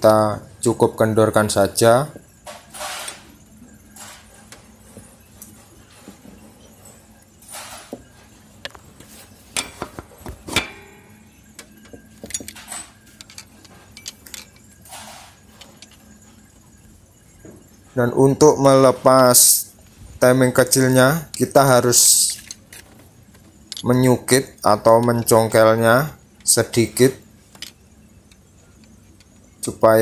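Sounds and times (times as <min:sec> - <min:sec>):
hand tools clinking on metal: 0:09.5 - 0:16.4, 0:20.5 - 0:30.0.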